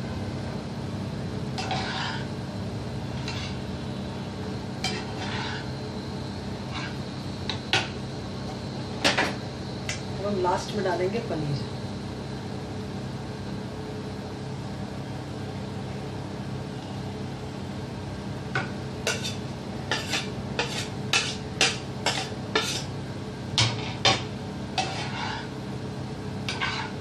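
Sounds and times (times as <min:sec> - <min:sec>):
steady low hum: 0:00.0 - 0:27.0
metal spoon scraping frying pan: 0:01.6 - 0:02.3, 0:03.2 - 0:03.6, 0:04.8 - 0:05.7, 0:06.7 - 0:07.0, 0:19.1 - 0:22.9, 0:24.8 - 0:25.5, 0:26.5 - 0:27.0.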